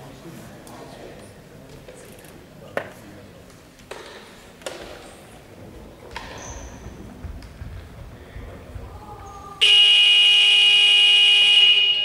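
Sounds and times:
murmur of sports hall: 0:00.0 - 0:12.0
scoreboard buzzer: 0:09.6 - 0:12.0.

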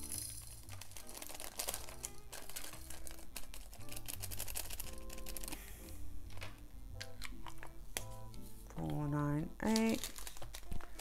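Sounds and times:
plastic bags crinkling: 0:00.0 - 0:05.7, 0:09.6 - 0:11.0
soft background music: 0:00.0 - 0:11.0
beads clicking into plastic tray: 0:00.1 - 0:05.6.

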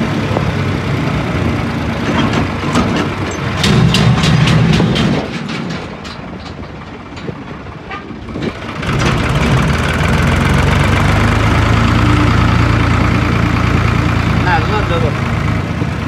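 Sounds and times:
tractor diesel engine running: 0:00.0 - 0:16.0
rapid sharp clatter: 0:02.3 - 0:06.8.

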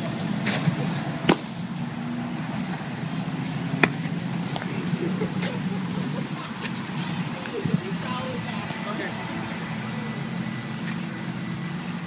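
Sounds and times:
steady low hum: 0:00.0 - 0:12.0
baseball smacking into glove: 0:01.3 - 0:01.5.

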